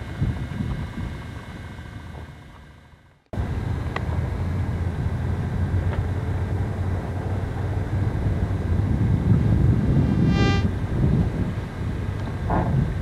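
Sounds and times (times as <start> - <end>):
vehicle engine humming: 3.4 - 13.0.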